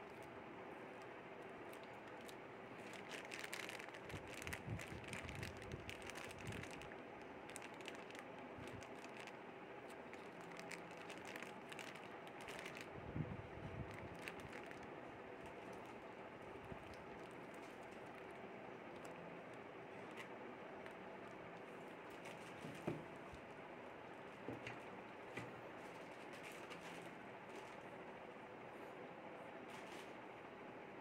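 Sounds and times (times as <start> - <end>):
plastic packaging crinkling: 0.0 - 13.0, 13.7 - 23.0
faint steady hum: 0.0 - 31.0.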